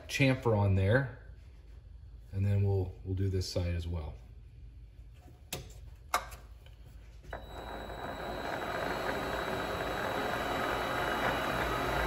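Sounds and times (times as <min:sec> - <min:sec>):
lathe motor whining: 0:07.3 - 0:12.0.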